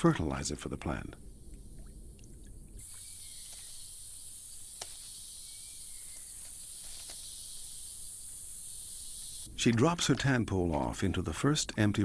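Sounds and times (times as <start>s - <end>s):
insect chorus drone: 1.0s - 9.6s.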